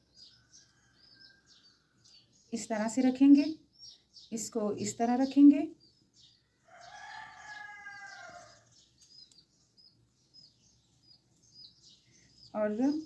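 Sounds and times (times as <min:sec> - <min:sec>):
small birds chirping: 0:00.0 - 0:13.0
faint rooster crowing: 0:00.2 - 0:02.2, 0:06.4 - 0:08.8.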